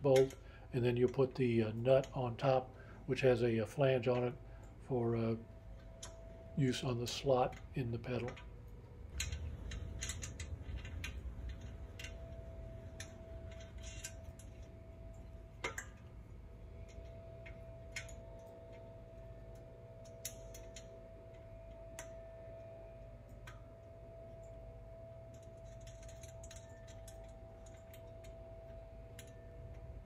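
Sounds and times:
metal parts clicking and tapping: 0:00.0 - 0:00.4, 0:09.1 - 0:16.1, 0:16.8 - 0:22.2, 0:25.3 - 0:29.8
faint steady tone: 0:00.0 - 0:30.0.

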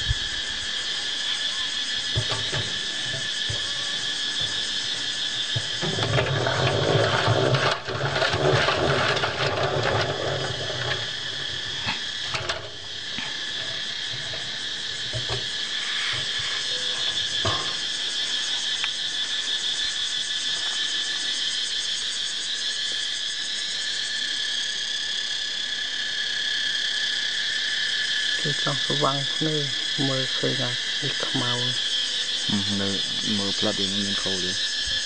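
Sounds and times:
insects trilling: 0:00.0 - 0:35.0.

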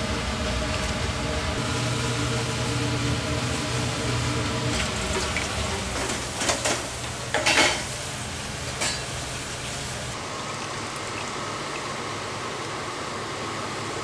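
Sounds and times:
kitchen hiss: 0:01.6 - 0:14.0.

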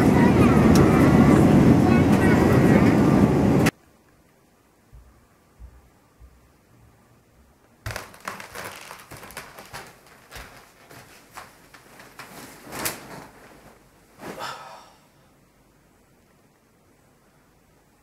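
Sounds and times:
bedding rustling and soft thumps: 0:07.9 - 0:14.4.

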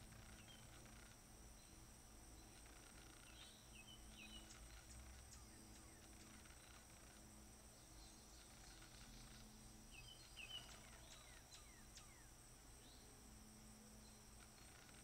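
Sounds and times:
steady high hiss: 0:00.0 - 0:15.0
bird chirps: 0:02.4 - 0:13.1.

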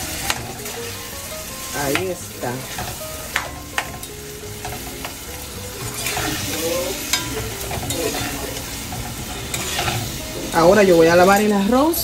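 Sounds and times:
food sizzling in a pot: 0:00.0 - 0:12.0
metal spoon clinking against pot: 0:02.8 - 0:05.2, 0:05.8 - 0:10.2.

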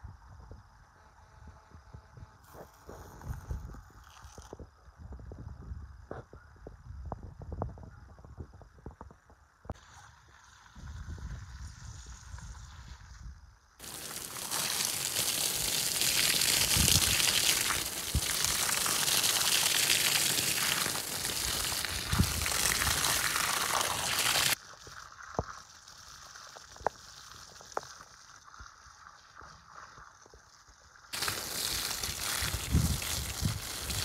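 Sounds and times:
water spraying: 0:13.8 - 0:30.1, 0:31.2 - 0:34.0.

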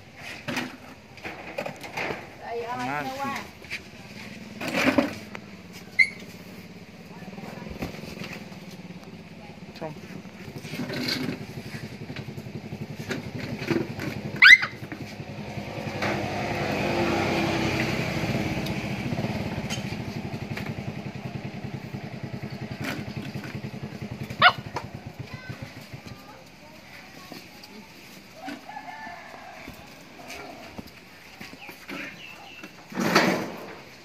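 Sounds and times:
small engine running: 0:02.8 - 0:33.8
sharp rising squeaks: 0:05.8 - 0:06.5, 0:19.6 - 0:20.1.

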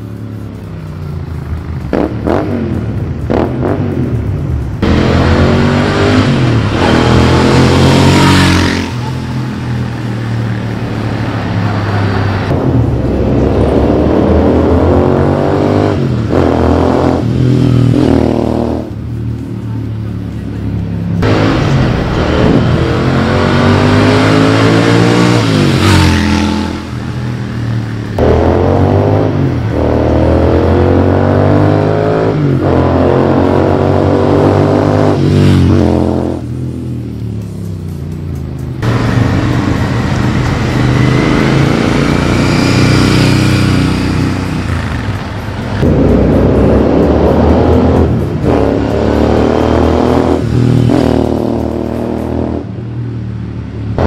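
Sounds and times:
motorcycles accelerating past: 0:04.8 - 0:12.6, 0:21.2 - 0:36.5, 0:38.8 - 0:52.8.

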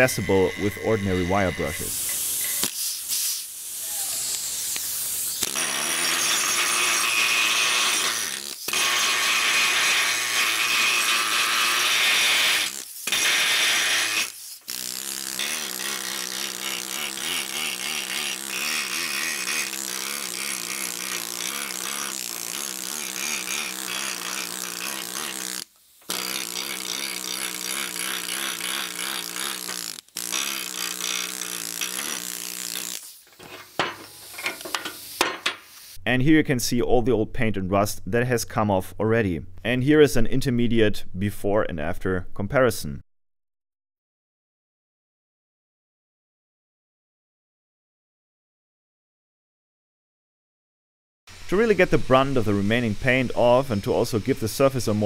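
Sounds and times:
needle scaler hammering metal: 0:05.4 - 0:35.7.

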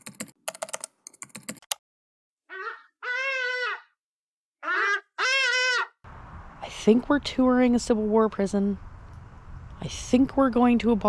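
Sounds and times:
keyboard typing clicks: 0:00.0 - 0:01.8
pitched animal calls: 0:02.5 - 0:04.0, 0:04.6 - 0:06.0.

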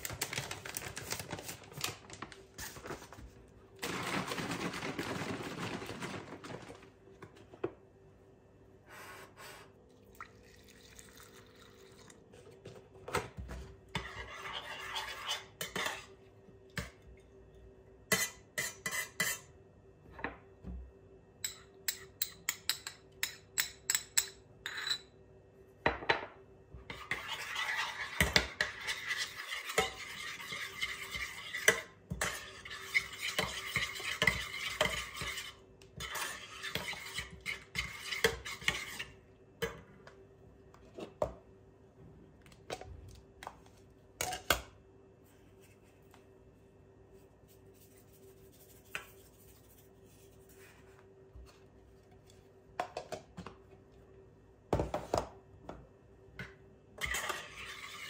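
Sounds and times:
spoon scraping while stirring: 0:13.9 - 0:16.2, 0:18.1 - 0:19.5, 0:26.9 - 0:39.2, 0:57.0 - 0:58.0.

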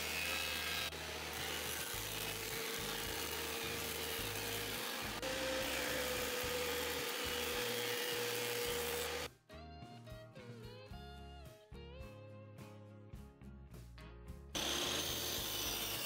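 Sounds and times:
planer motor whine: 0:04.9 - 0:09.3, 0:14.6 - 0:16.0.

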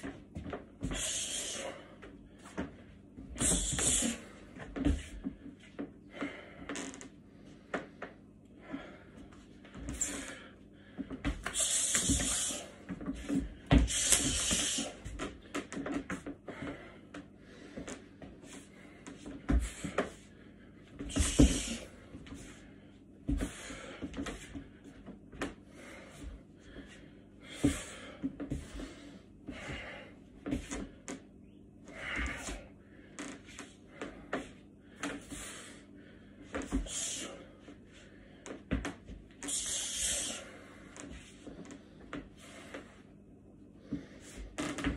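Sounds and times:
man's hissing exhalations: 0:00.8 - 0:01.8, 0:03.4 - 0:04.3, 0:11.4 - 0:12.8, 0:13.8 - 0:15.1, 0:21.1 - 0:21.9, 0:36.7 - 0:37.4, 0:39.4 - 0:40.6.

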